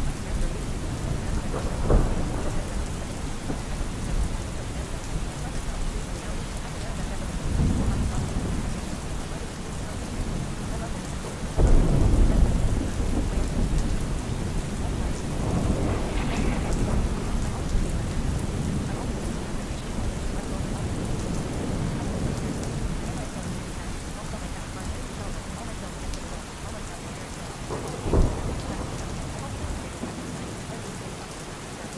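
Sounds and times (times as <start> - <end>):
thunder rumbling: 0.0 - 30.9
steady rain: 0.0 - 31.9.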